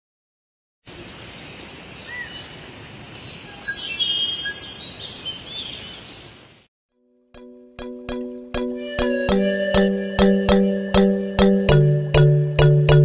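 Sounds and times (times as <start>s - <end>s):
birds chirping and whistling: 3.3s - 6.1s
trilling bird calls: 3.3s - 6.2s.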